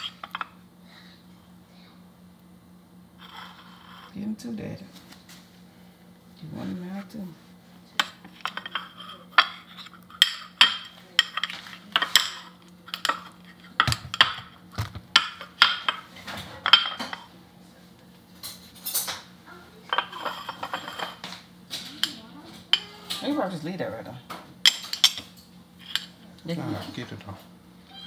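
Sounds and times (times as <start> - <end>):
metal spoon clinking on plates: 0.0 - 0.6, 8.0 - 17.3, 18.4 - 19.3, 19.9 - 23.4, 24.6 - 26.2.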